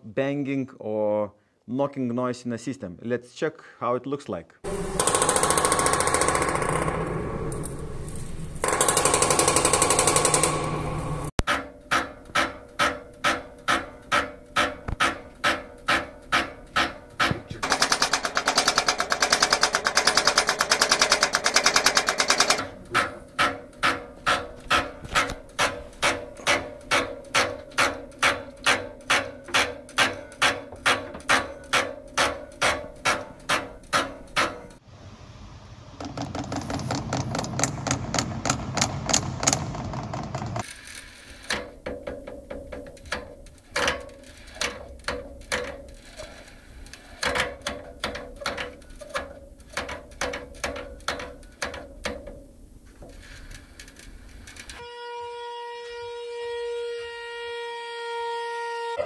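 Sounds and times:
heating valves rattling: 0:04.7 - 0:34.8, 0:36.0 - 0:54.8.

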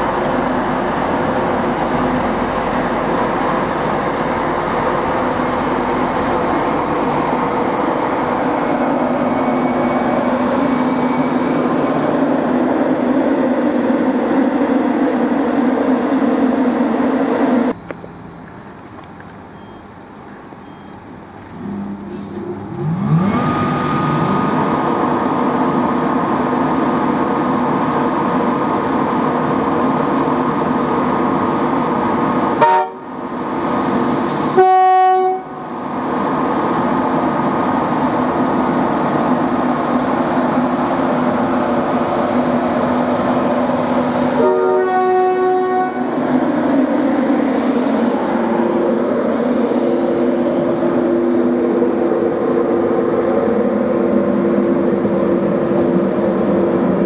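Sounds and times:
electric locomotive drone and whine: 0:00.0 - 0:57.0
train horn: 0:32.6 - 0:33.1, 0:34.6 - 0:35.6, 0:44.4 - 0:46.1.

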